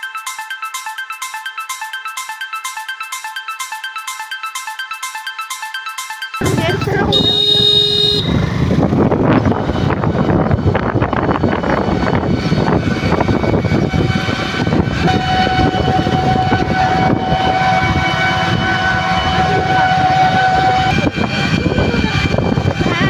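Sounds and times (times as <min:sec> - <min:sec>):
thin steady whine: 0:06.4 - 0:23.0
vehicle road noise: 0:06.4 - 0:23.0
wind rushing over microphone: 0:06.4 - 0:23.0.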